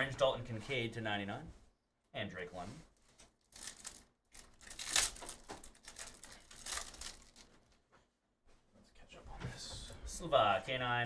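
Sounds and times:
foil wrapper tearing and crinkling: 3.4s - 7.5s.

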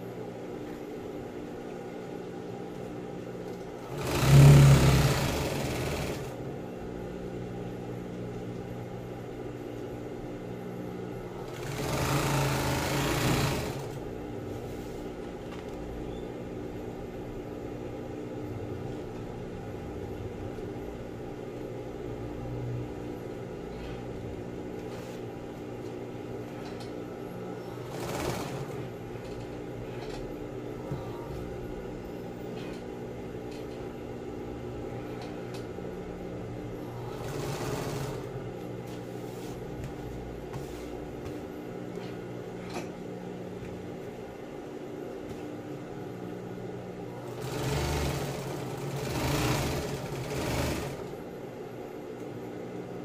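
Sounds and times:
sewing machine stitching: 3.8s - 6.4s, 11.4s - 14.0s, 27.8s - 28.9s, 36.9s - 38.4s, 47.2s - 51.2s.

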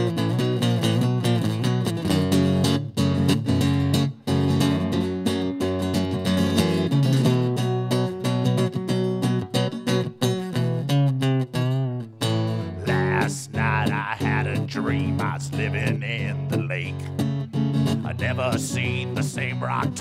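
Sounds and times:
guitar strumming chords: 0.0s - 20.0s
person singing country song: 12.5s - 20.0s.

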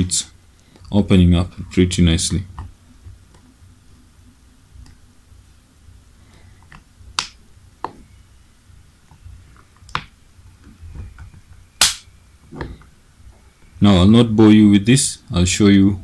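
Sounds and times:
sharp plastic snaps: 6.7s - 7.4s, 11.8s - 12.1s.

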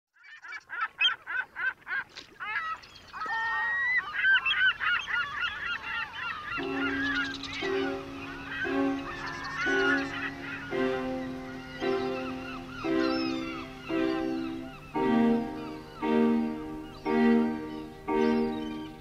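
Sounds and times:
flock of birds calling: 0.2s - 19.0s
music with held chords: 6.6s - 19.0s.

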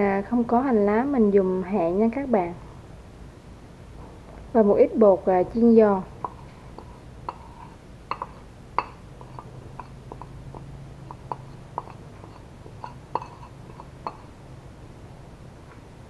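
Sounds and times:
metal spoon clinking on ceramic plate: 6.2s - 14.4s.

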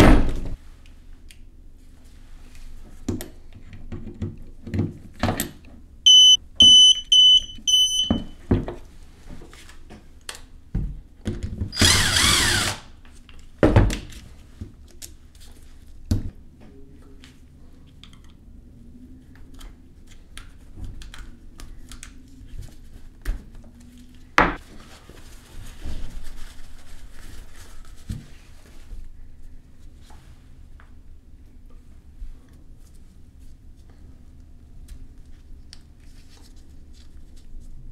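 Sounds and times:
torque wrench beeping: 6.1s - 8.2s.

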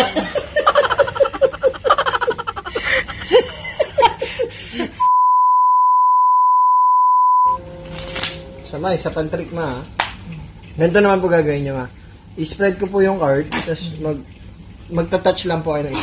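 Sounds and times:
woman laughing: 0.0s - 5.0s
high test-tone beep: 5.0s - 7.8s.

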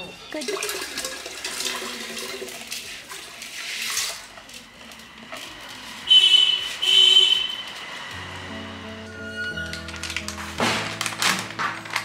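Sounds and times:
liquid pouring into a pot: 0.4s - 4.6s.

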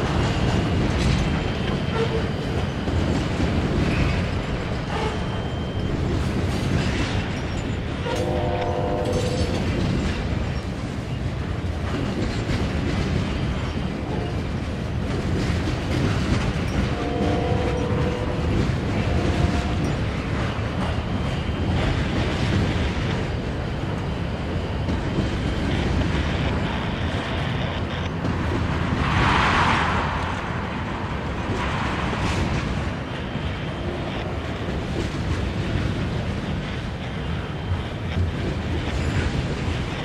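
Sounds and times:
passing train rumble: 0.0s - 40.0s
train horn blasts: 8.0s - 9.6s, 14.0s - 14.4s, 16.9s - 19.9s.

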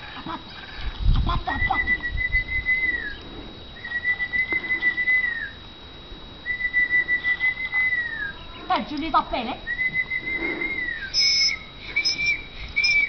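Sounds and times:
person whistling: 3.8s - 5.6s, 6.4s - 8.3s, 9.7s - 13.0s.

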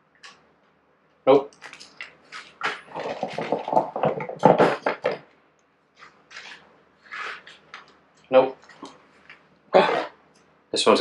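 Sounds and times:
small hard parts clattering: 1.5s - 5.3s.

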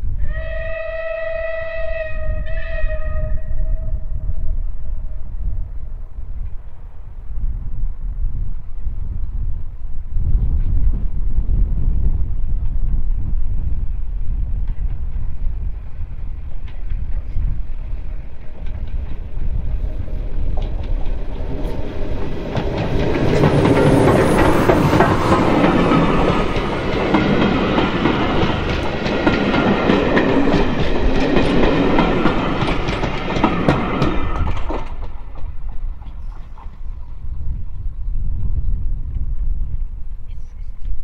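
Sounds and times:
train wheels clicking over rail joints: 14.5s - 37.2s.

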